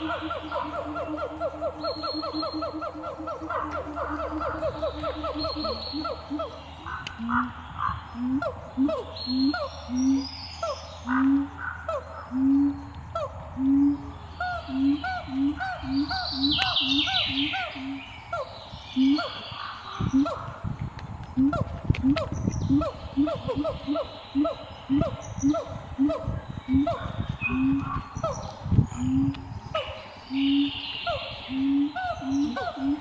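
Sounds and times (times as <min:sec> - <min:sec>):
higher bird chirps: 0:00.0 - 0:20.5
low hooting bird calls: 0:00.0 - 0:20.6, 0:21.3 - 0:33.0.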